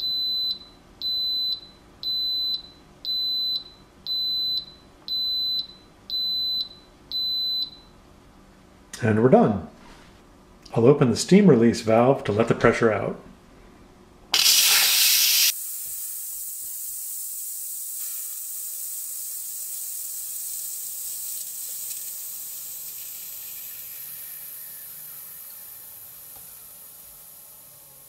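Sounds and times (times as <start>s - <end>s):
pressure cooker steam hissing: 14.4s - 28.0s.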